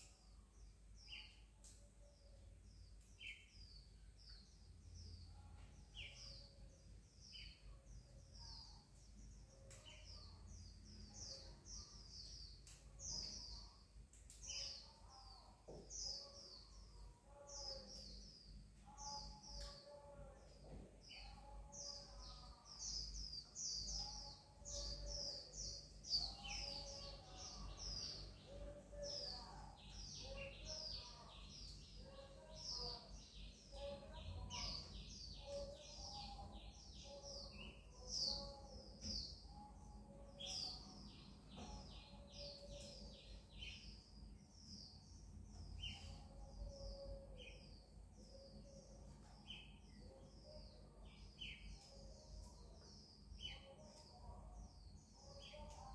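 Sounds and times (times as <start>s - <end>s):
faint sharp clicks: 12.5s - 13.1s.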